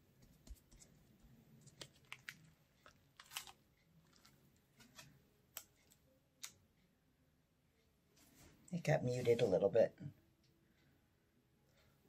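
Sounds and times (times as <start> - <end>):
sticky paint crackles and clicks: 0.2 - 6.6.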